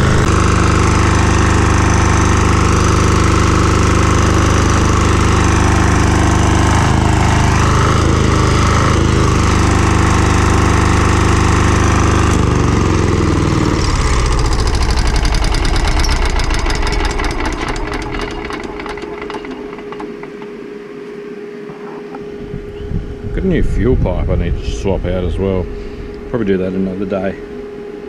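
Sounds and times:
engine coasting to a stop: 0.0s - 20.8s
diesel generator engine running: 0.0s - 21.4s, 22.0s - 28.0s.

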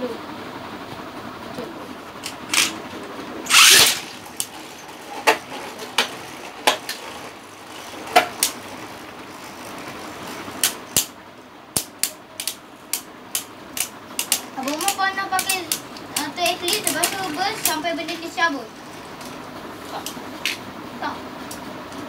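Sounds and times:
spinning tops ripped from launchers: 2.2s - 8.8s, 9.5s - 18.2s
spinning tops clacking: 2.2s - 19.4s.

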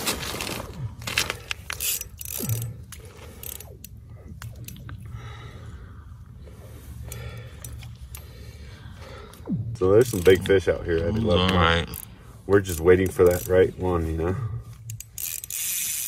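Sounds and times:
fishing reel ratcheting clicks: 1.1s - 5.1s, 7.0s - 8.4s, 9.9s - 16.0s.

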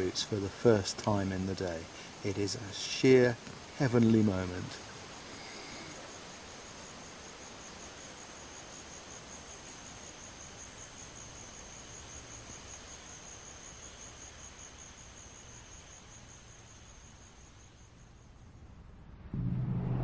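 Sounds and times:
soft background hiss: 0.0s - 20.0s
insect pulsing trill: 5.1s - 20.0s.

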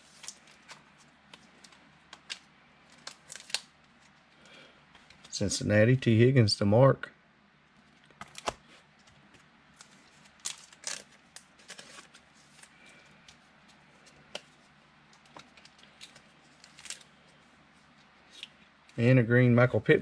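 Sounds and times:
trading cards clicking and rustling: 7.8s - 17.1s.

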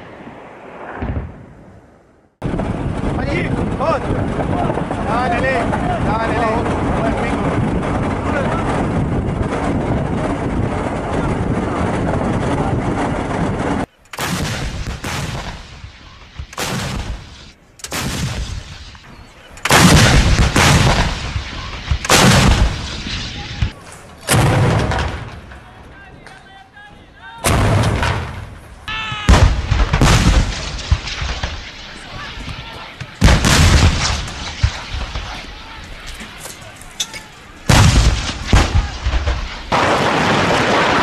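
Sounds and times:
field guns firing: 14.1s - 19.0s, 19.6s - 25.7s, 27.4s - 28.6s, 29.3s - 41.0s.

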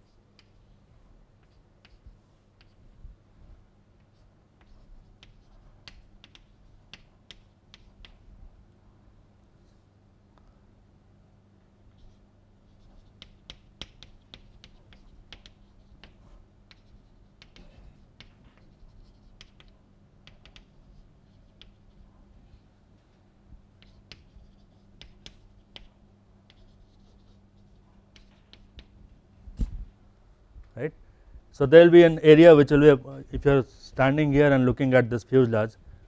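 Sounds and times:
low steady hum: 0.0s - 36.0s
chalk tapping and scratching: 1.4s - 2.8s, 4.0s - 8.2s, 12.0s - 23.1s, 23.8s - 29.0s.

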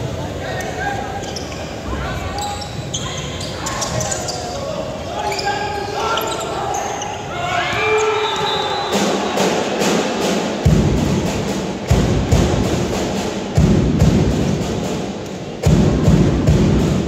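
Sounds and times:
drum beating deep thumps: 10.6s - 15.0s, 15.6s - 17.0s.

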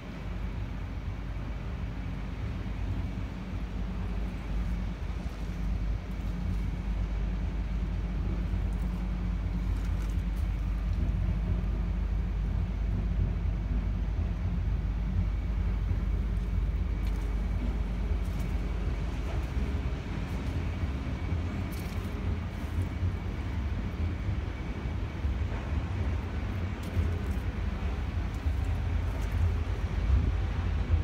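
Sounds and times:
diesel engine idling: 0.0s - 31.0s.

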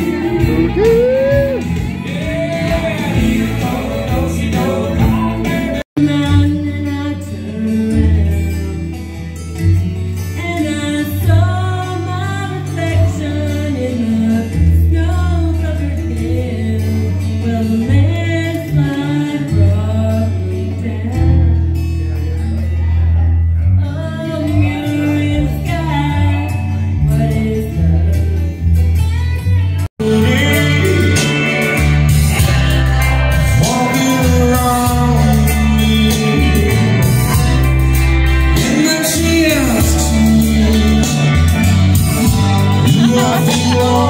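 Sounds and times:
amplified backing music: 0.0s - 44.0s
woman singing into microphone: 4.2s - 8.6s, 10.3s - 21.6s, 23.8s - 28.6s, 42.8s - 44.0s.

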